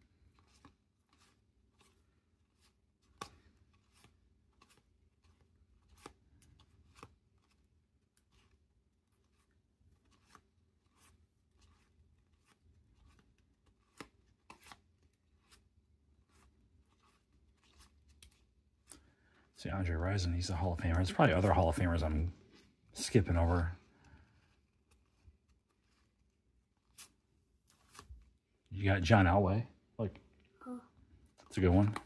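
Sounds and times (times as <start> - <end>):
trading cards flicking and clicking: 0.2 - 19.1.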